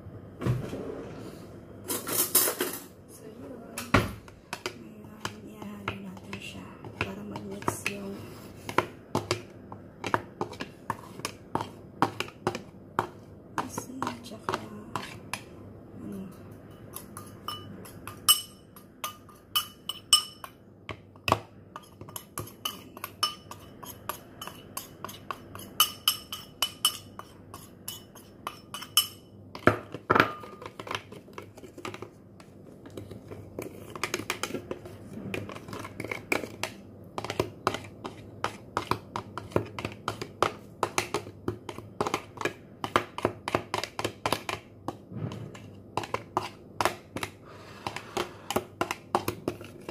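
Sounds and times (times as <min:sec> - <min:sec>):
spoon clinking in a bowl: 0:16.5 - 0:20.6, 0:21.8 - 0:29.4.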